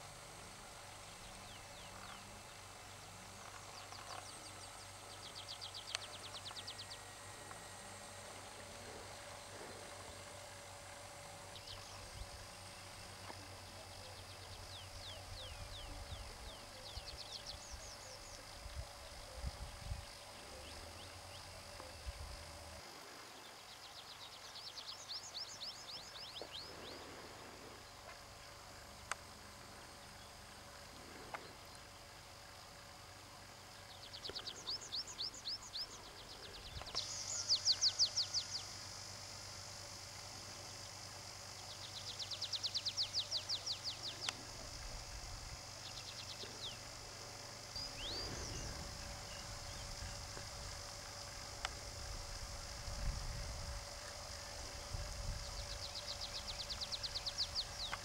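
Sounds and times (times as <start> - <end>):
songbird trilling: 34.0 - 38.6.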